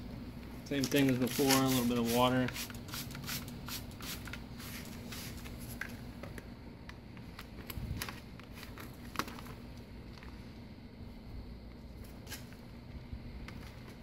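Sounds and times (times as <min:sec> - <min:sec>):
vinyl decal rustling: 0:00.7 - 0:03.4
spray bottle spritzing: 0:01.2 - 0:05.4.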